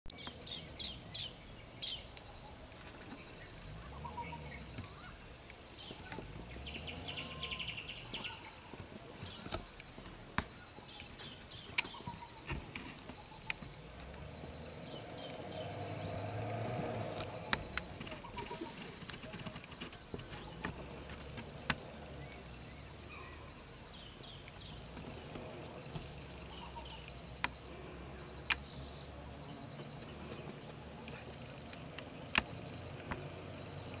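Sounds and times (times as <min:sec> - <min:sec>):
insect chirps: 0:00.1 - 0:34.0
insect chorus shrilling: 0:00.2 - 0:34.0
sharp clicks: 0:09.5 - 0:13.8, 0:28.4 - 0:28.8.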